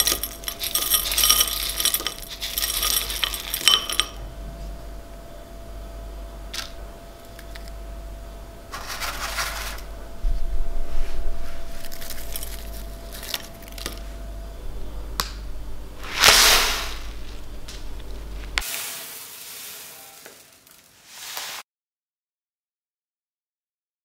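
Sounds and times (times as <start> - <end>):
lentils spilling on hard surface: 0.0 - 4.1, 8.8 - 9.8, 16.0 - 17.8, 18.4 - 21.6
granola rustling and crunching: 16.0 - 21.6.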